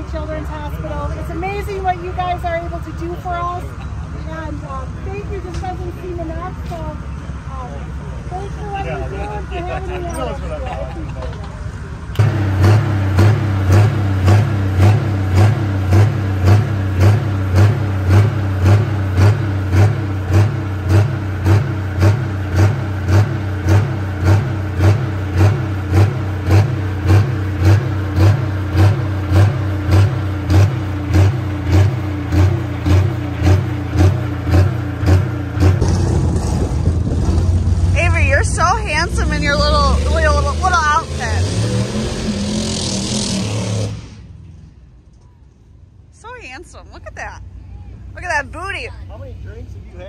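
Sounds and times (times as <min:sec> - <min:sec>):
tractor diesel engine lumpy idle: 0:00.0 - 0:35.8.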